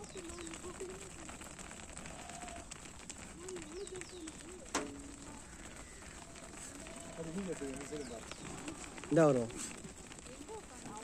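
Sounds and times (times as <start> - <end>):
sheep hooves on brick: 0.0 - 11.0
sheep calling: 1.9 - 2.8, 3.5 - 9.7.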